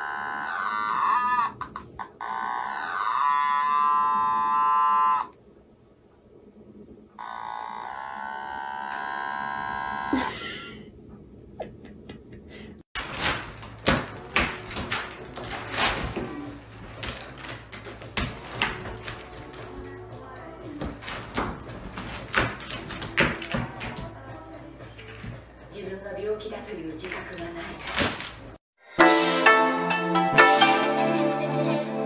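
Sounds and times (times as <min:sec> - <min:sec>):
paper crinkling and rustling: 0:13.0 - 0:19.6.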